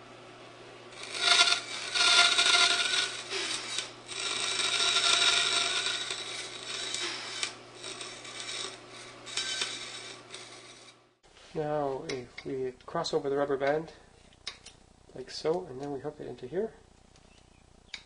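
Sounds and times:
bandsaw motor hum: 0.7s - 11.1s
saw blade cutting wood: 0.9s - 11.0s.

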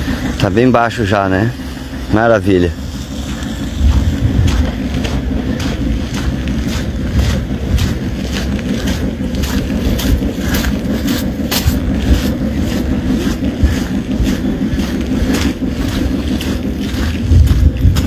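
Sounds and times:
footsteps on wet ground: 0.0s - 18.0s
wind on microphone: 3.6s - 5.1s, 15.8s - 18.0s.

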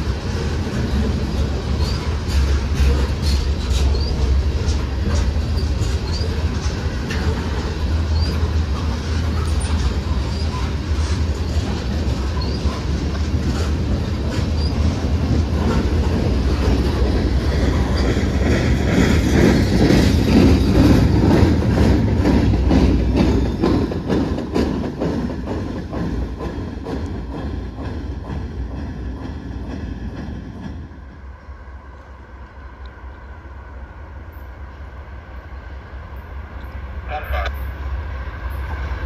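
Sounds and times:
wheels clicking over rail joints: 0.0s - 31.0s
freight train rumbling past: 0.0s - 39.0s.

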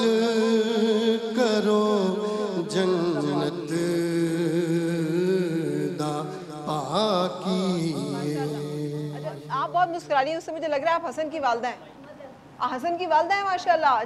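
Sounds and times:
man chanting into a microphone: 0.0s - 9.5s.

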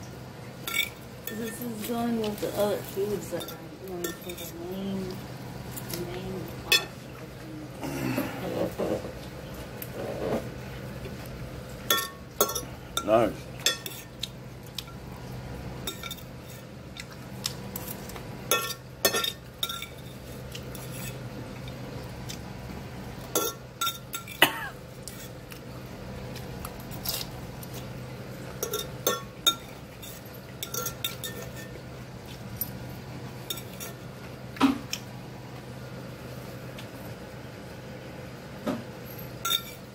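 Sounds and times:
steady low hum: 0.0s - 39.9s
fork clinking on ceramic dish: 0.7s - 1.6s, 11.9s - 14.0s, 18.5s - 20.1s, 28.6s - 31.7s, 39.4s - 39.9s.

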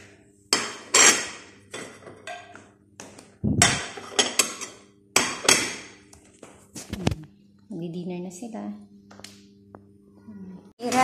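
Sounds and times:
low steady hum: 0.0s - 11.0s
dishes and metal ware clattering: 0.5s - 2.6s, 3.6s - 6.0s.

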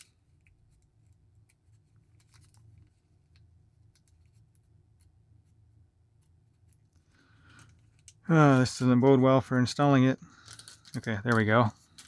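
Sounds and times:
low steady hum: 0.0s - 12.0s
plastic bag crinkling: 10.3s - 12.0s.

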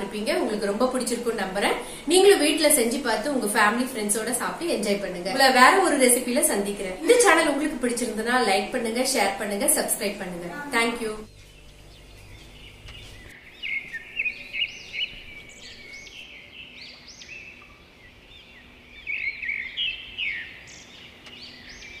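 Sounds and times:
small birds chirping: 10.8s - 22.0s.

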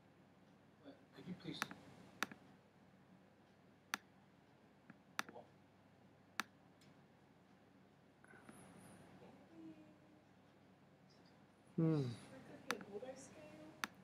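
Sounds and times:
computer mouse clicking: 1.6s - 2.4s, 12.7s - 12.9s.

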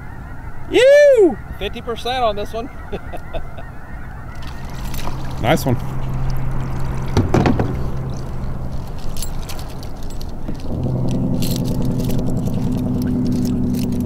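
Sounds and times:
metal chain clinking and rattling: 4.6s - 5.4s, 8.0s - 14.0s.

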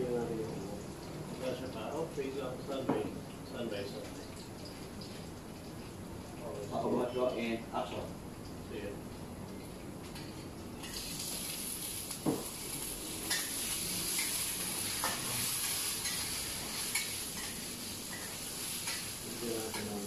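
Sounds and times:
food sizzling in hot oil: 10.8s - 20.0s.

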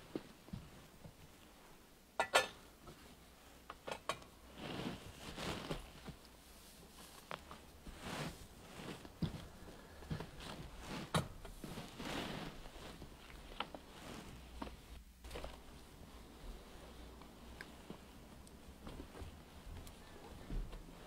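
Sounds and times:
soft rustling: 0.0s - 2.0s, 2.8s - 21.0s
metal vessels clinking: 2.2s - 2.6s.

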